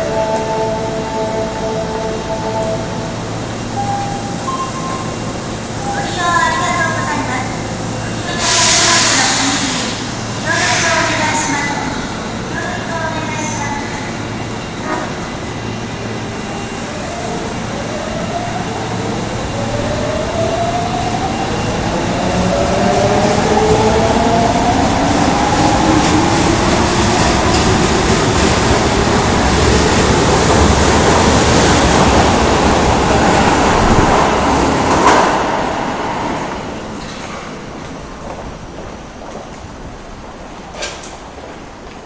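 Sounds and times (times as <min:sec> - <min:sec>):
train jolt: 0:24.6 - 0:42.0.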